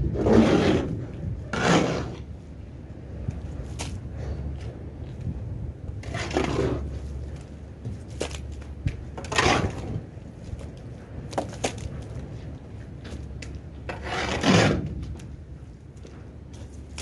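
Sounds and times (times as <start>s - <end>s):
steady low rumble: 0.0s - 17.0s
shovel scraping muck: 1.5s - 2.2s, 13.9s - 14.8s.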